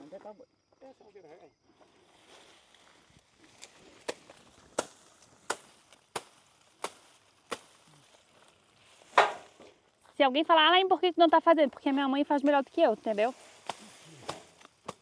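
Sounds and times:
sharp chopping strokes: 13.6 - 15.0.

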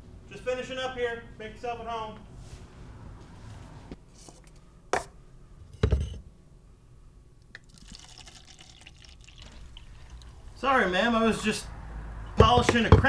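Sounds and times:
coffee pouring into a paper cup: 7.6 - 10.6.

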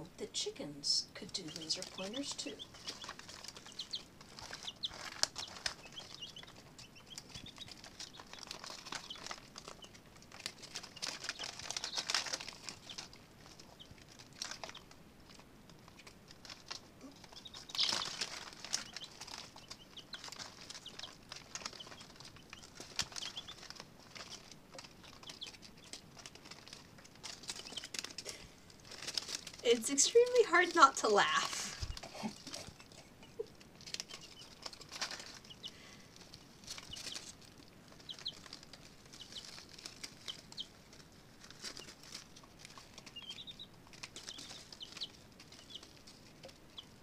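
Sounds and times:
chicks peeping: 0.0 - 47.0
chicks scratching on shavings: 0.3 - 47.0
paper crinkling: 1.2 - 47.0.

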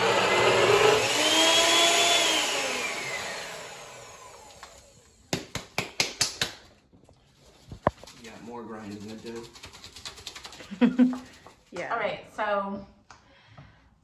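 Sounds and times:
blender motor grinding: 0.0 - 5.2.

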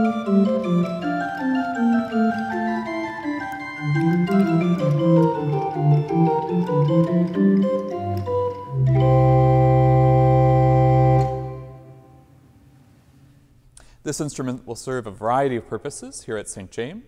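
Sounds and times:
chamber organ playing: 0.0 - 12.3.

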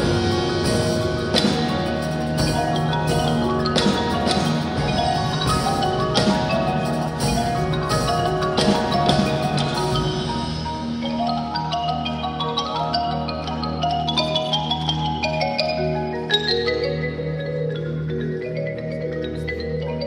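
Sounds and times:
marimbas ringing notes: 0.0 - 20.0.

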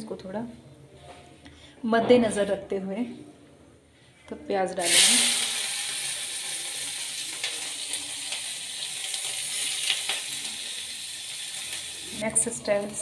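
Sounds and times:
onions sizzling in oil: 4.8 - 13.0.

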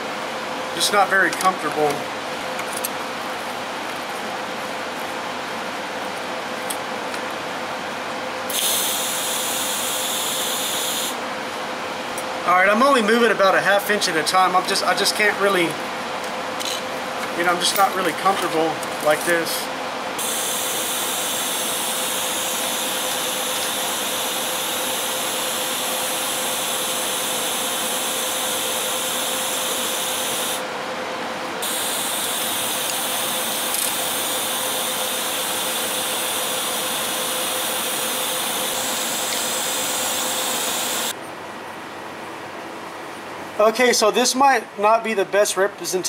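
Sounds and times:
welding arc hissing: 8.5 - 11.2, 20.2 - 30.6, 31.6 - 41.1.

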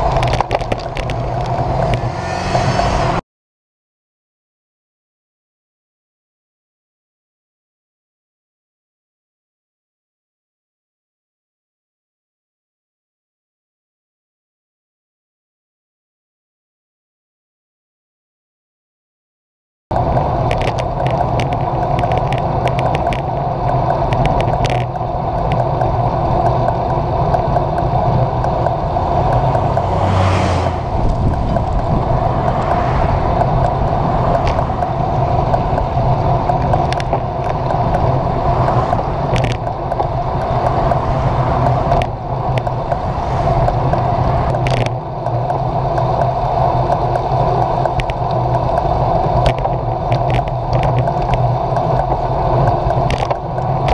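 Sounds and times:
wind and road noise from bike: 0.0 - 3.2, 19.9 - 53.9
camera mount clicks and rattles: 38.7 - 40.1.

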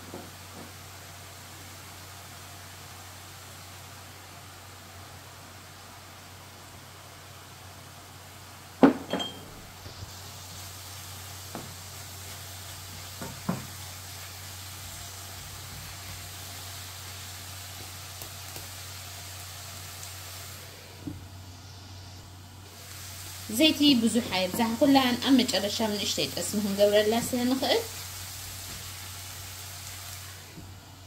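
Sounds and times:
vegetables sizzling in frying pan: 0.0 - 31.0
glass lid clinking down: 9.0 - 9.5
wooden spatula knocking pan: 13.2 - 13.7.

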